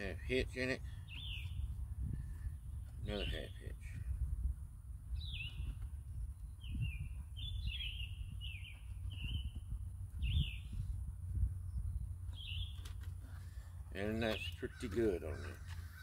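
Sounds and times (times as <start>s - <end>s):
songbird whistling: 1.1s - 1.7s, 6.6s - 10.8s.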